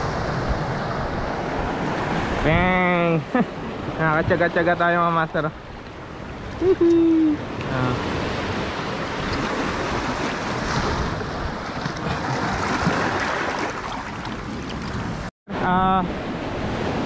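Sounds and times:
surf breaking over rocks: 0:07.6 - 0:15.0.

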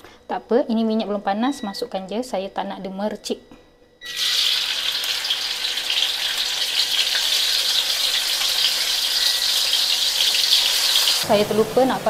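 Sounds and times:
food frying in oil: 0:04.1 - 0:12.0.

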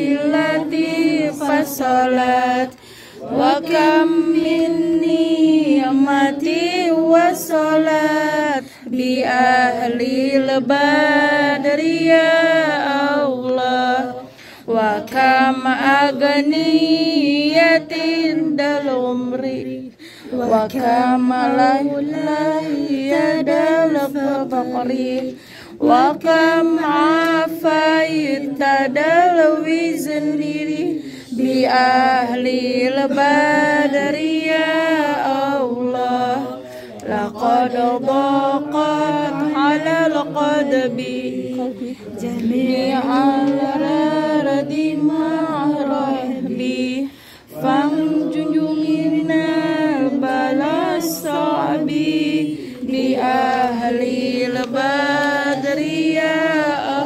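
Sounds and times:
women chanting together: 0:00.0 - 0:57.0.

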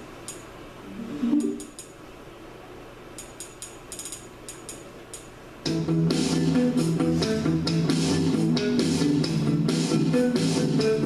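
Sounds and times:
guitar music with bass: 0:05.7 - 0:11.0.

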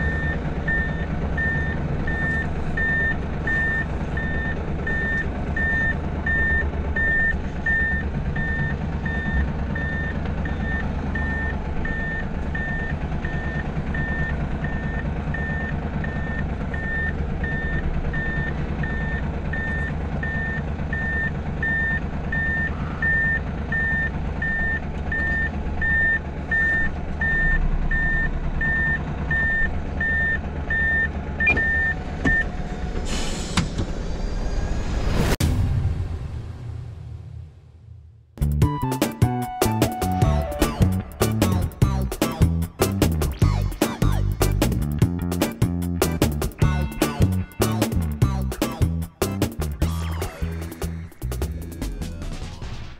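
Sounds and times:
truck reversing alarm beeping: 0:00.0 - 0:33.6, 0:38.7 - 0:41.4
diesel engine running: 0:00.0 - 0:36.9, 0:38.4 - 0:52.9.

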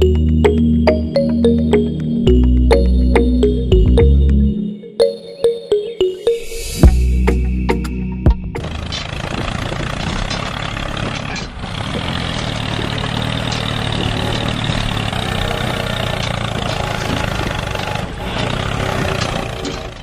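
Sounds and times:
engine running drone: 0:06.5 - 0:20.0.

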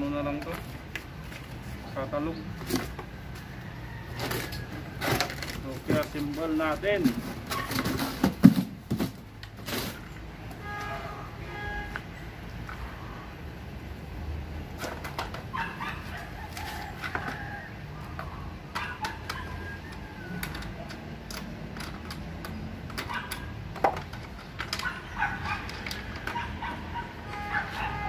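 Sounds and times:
birds calling: 0:24.4 - 0:28.0.

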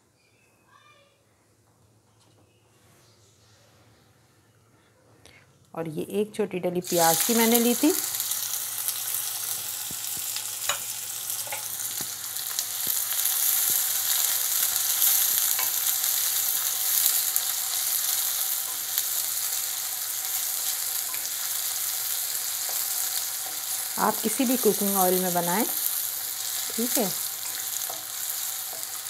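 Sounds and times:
onion sizzling in oil: 0:06.2 - 0:29.0.

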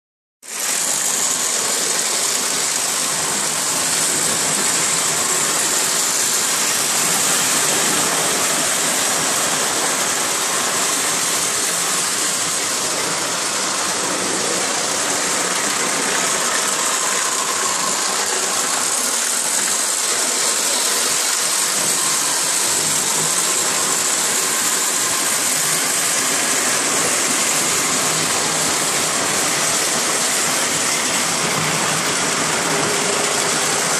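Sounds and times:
model trains whirring on track: 0:00.4 - 0:33.9.

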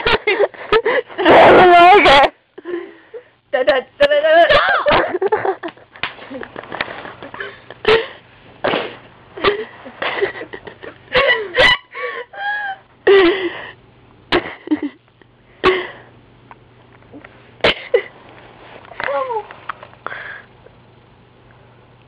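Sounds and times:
stifled breathy laughter: 0:04.9 - 0:08.2, 0:09.4 - 0:13.8.

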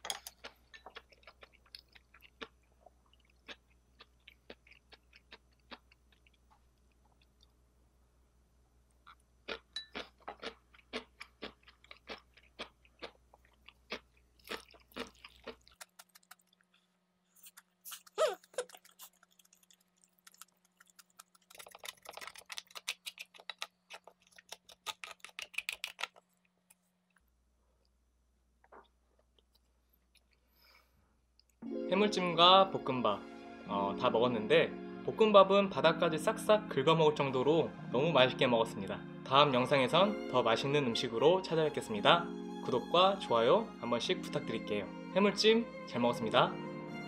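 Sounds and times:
person chewing crunchy food: 0:00.2 - 0:07.5, 0:09.1 - 0:27.2.

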